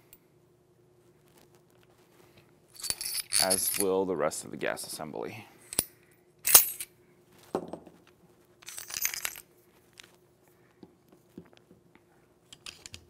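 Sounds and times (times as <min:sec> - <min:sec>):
small metal pieces clinking: 0:02.7 - 0:04.0, 0:05.7 - 0:06.9, 0:08.6 - 0:09.5.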